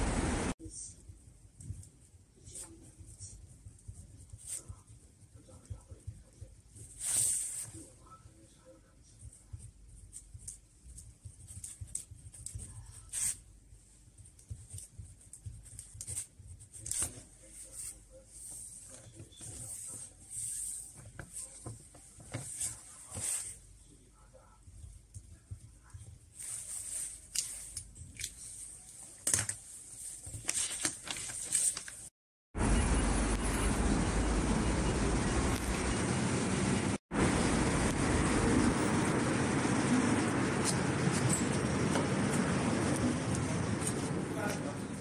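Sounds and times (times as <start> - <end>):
street traffic noise: 0.0 - 0.5, 32.6 - 45.0
ballpoint pen scratching on paper: 8.8 - 18.0
paper rustling and crackling: 26.4 - 32.1.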